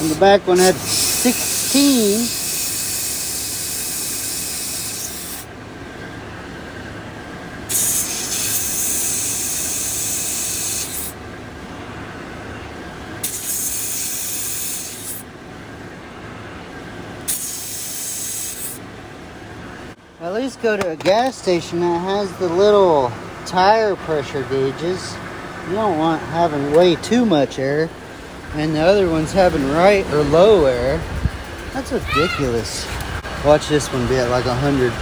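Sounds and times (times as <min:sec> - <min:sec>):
loud hissing air: 0:00.0 - 0:05.5, 0:07.6 - 0:11.2, 0:13.2 - 0:15.3, 0:17.2 - 0:18.8
compressor pulsing hum: 0:00.0 - 0:35.0.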